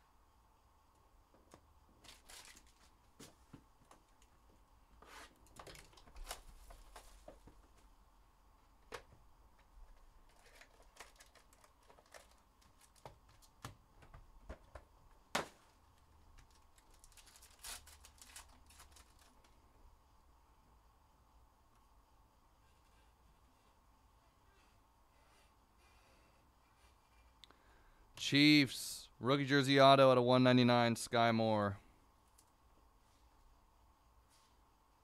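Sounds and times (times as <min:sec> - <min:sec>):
foil wrapper crinkling: 0:02.0 - 0:03.1, 0:10.2 - 0:13.5, 0:16.3 - 0:19.6.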